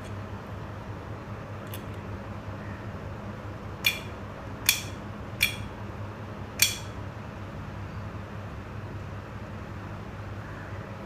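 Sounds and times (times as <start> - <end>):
solenoid lock clicking: 3.8 - 4.1, 4.7 - 5.7, 6.6 - 6.9.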